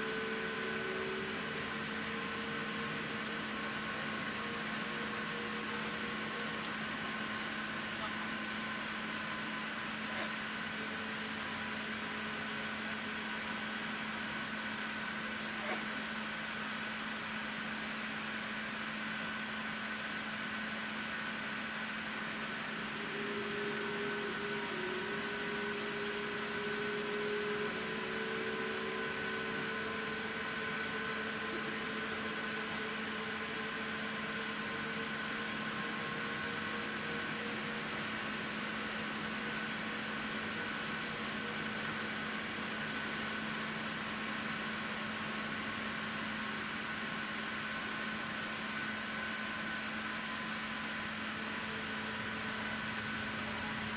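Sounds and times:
aircraft cabin engine hum: 0:00.0 - 0:13.0
faint whine: 0:00.0 - 0:53.9.

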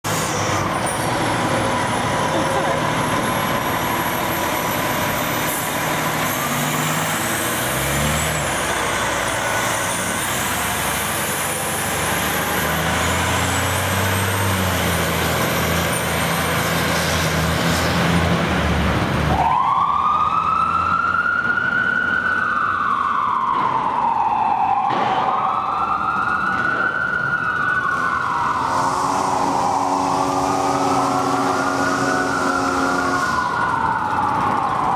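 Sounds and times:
diesel engine revving: 0:00.0 - 0:20.0, 0:27.6 - 0:34.9
electronic siren wailing: 0:19.3 - 0:34.9
steady air horn: 0:28.5 - 0:33.6.

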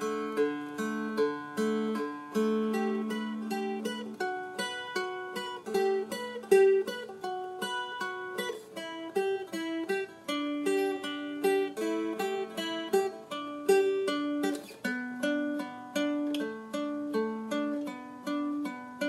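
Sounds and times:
plucked string melody: 0:00.0 - 0:19.0.

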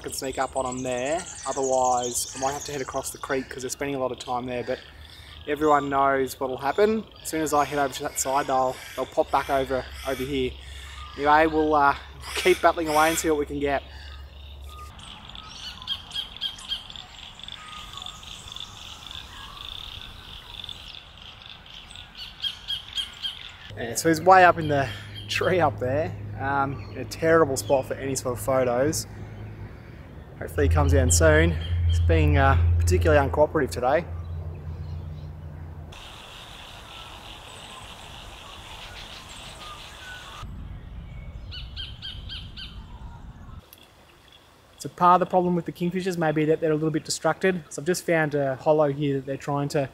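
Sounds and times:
faint bird chirps: 0:00.0 - 0:25.5, 0:36.0 - 0:45.0
kingfisher calling: 0:00.0 - 0:40.4
low rumble: 0:29.1 - 0:35.9, 0:40.4 - 0:43.6
steady high hiss: 0:36.0 - 0:40.4.

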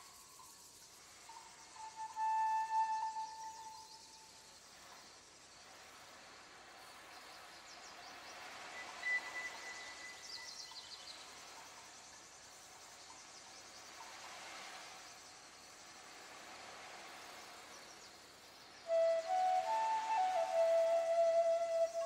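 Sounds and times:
faint bird-like chirping: 0:00.0 - 0:22.0
soft steady hiss: 0:00.0 - 0:22.0
thin high whistle: 0:01.3 - 0:04.5, 0:08.8 - 0:10.5, 0:18.8 - 0:22.0.

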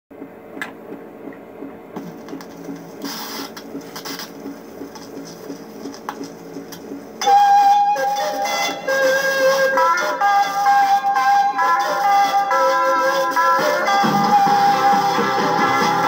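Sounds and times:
record surface hiss: 0:00.1 - 0:16.0
music through small speaker: 0:07.2 - 0:16.0.

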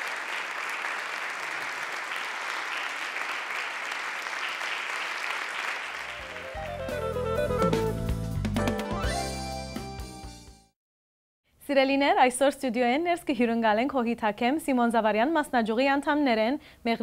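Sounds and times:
audience applauding: 0:00.0 - 0:07.9
instrumental music with heavy bass: 0:06.5 - 0:10.5.

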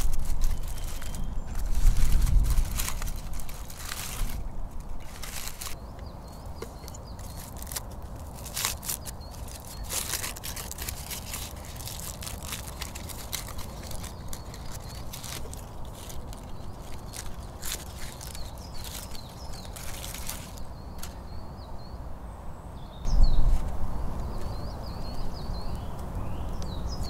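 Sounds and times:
aluminium foil crinkling: 0:00.0 - 0:05.8, 0:06.7 - 0:21.2.

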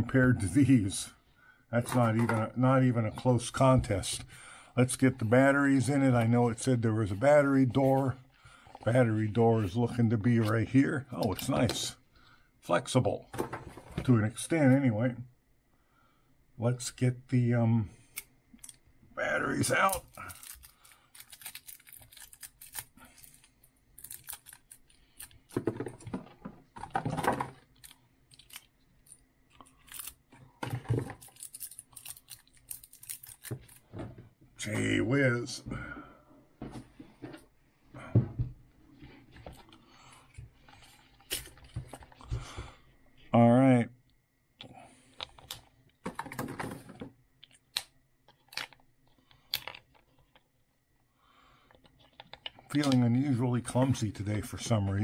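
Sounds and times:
plastic wrapping crinkling: 0:19.9 - 0:25.6, 0:30.8 - 0:34.0.

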